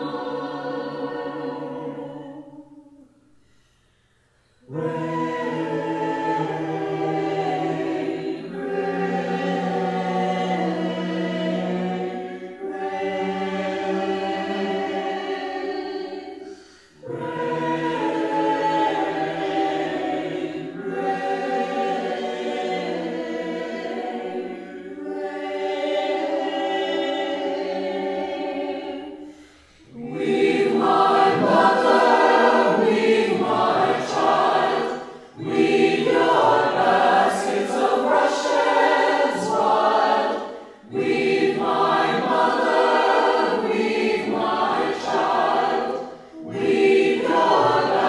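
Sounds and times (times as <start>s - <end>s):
choir singing sustained chords: 0.0s - 48.0s.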